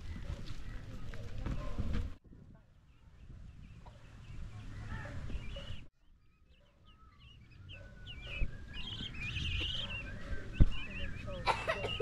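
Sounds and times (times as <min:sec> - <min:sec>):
small birds chirping: 0:00.0 - 0:01.8, 0:02.5 - 0:12.0.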